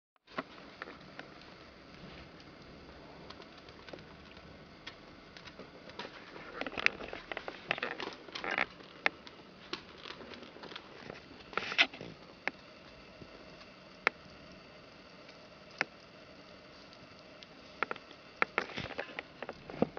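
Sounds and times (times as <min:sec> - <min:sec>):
small clicks and pops: 0:00.3 - 0:19.9
puppies rustling and scrabbling: 0:03.2 - 0:12.2.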